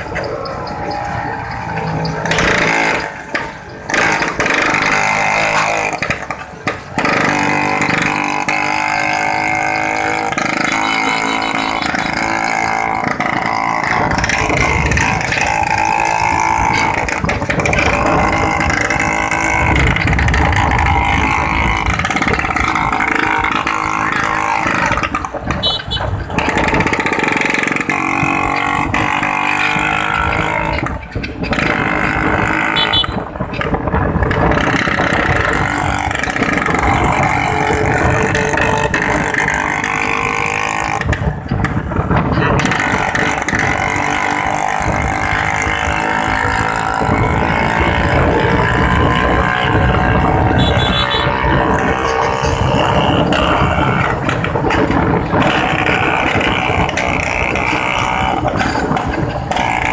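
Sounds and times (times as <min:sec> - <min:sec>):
scooter engines running: 0:00.0 - 0:59.9.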